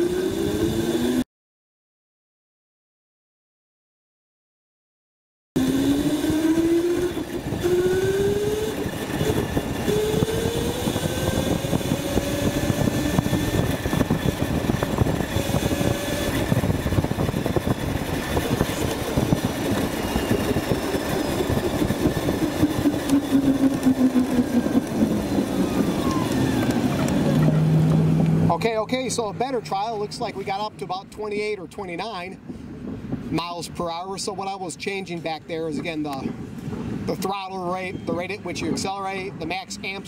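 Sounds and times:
electric motor whine: 0:00.0 - 0:01.2, 0:05.6 - 0:28.5
tyre road noise: 0:00.0 - 0:01.2, 0:05.6 - 0:40.0.

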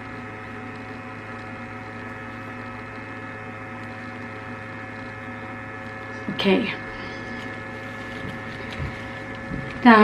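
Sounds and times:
steady electrical hum: 0:00.0 - 0:10.0.

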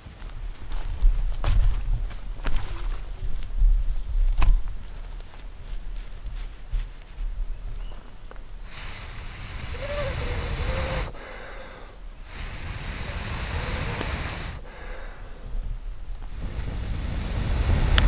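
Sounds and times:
person blowing into tinder: 0:08.7 - 0:15.3.

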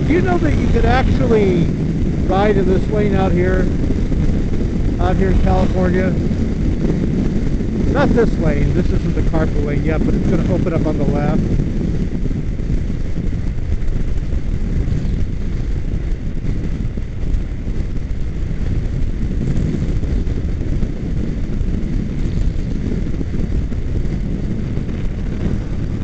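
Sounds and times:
road noise: 0:00.0 - 0:12.8
motorcycle engine cruising: 0:00.0 - 0:26.0
wind buffeting microphone: 0:00.0 - 0:26.0.

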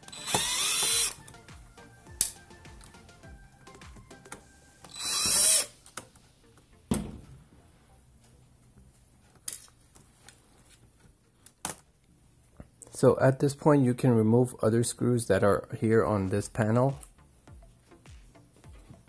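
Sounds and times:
cordless drill whirring: 0:00.0 - 0:01.3, 0:04.9 - 0:05.8.

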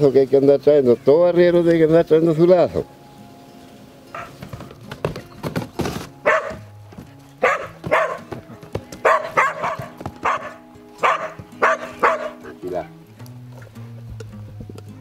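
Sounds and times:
dogs barking: 0:04.1 - 0:04.5, 0:06.2 - 0:13.0
horse hooves on dirt: 0:04.1 - 0:15.0.

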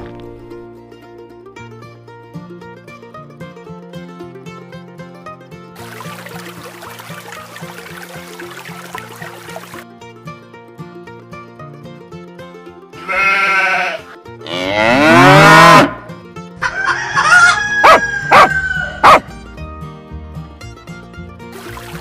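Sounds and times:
plucked-string background music: 0:00.0 - 0:22.0
sheep or goat bleating: 0:13.0 - 0:16.0.

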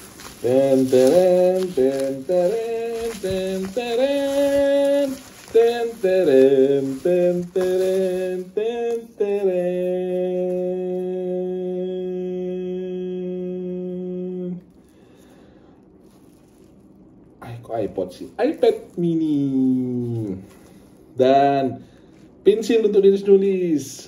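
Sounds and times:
person humming a tune: 0:00.4 - 0:14.6.

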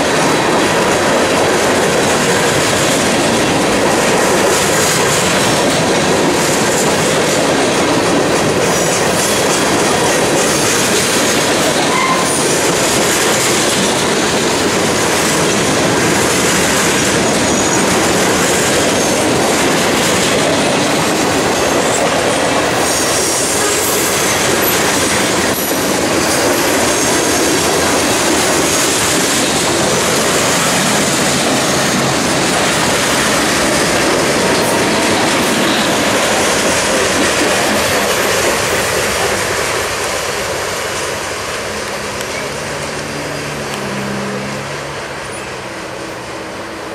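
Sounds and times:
train wheels rushing on rails: 0:00.0 - 0:46.9
high wheel squeals: 0:11.7 - 0:12.7, 0:22.8 - 0:27.7.

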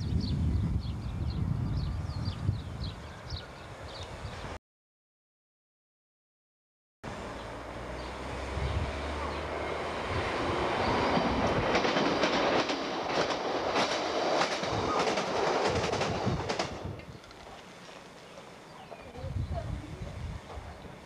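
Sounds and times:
passenger train passing: 0:00.3 - 0:04.6, 0:07.1 - 0:21.0
wheels clicking over rail joints: 0:11.1 - 0:19.2.

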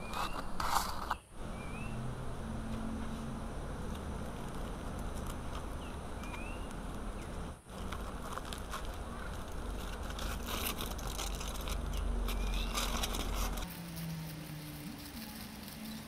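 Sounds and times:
bird chirping: 0:00.0 - 0:02.1, 0:05.6 - 0:07.5, 0:11.9 - 0:13.7
dense crackling and rustling: 0:03.8 - 0:16.0.

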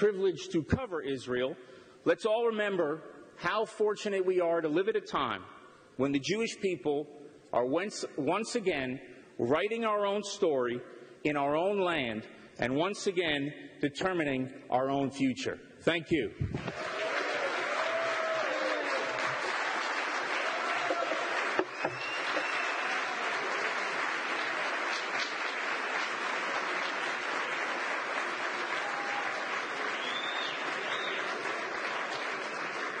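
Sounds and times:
large audience applauding: 0:16.6 - 0:33.0.

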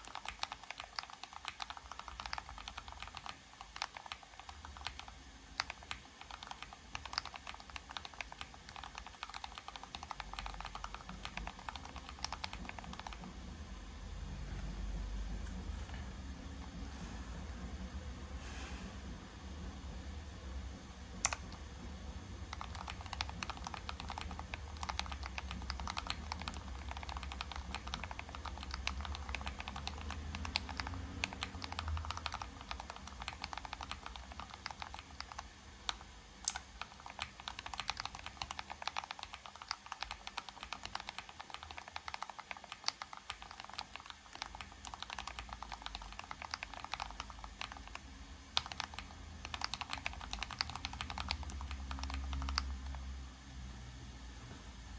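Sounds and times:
mechanical keyboard typing: 0:00.0 - 0:13.3, 0:22.5 - 0:53.0.

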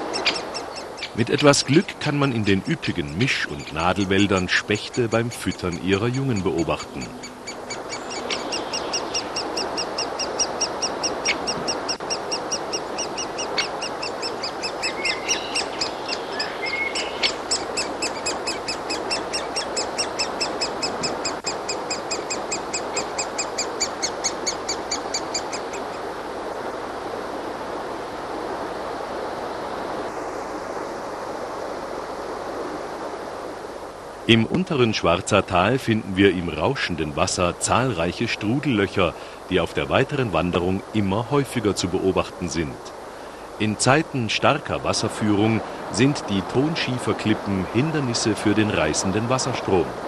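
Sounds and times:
nestlings begging chatter: 0:00.0 - 0:26.0
flowing stream: 0:00.0 - 0:50.0.

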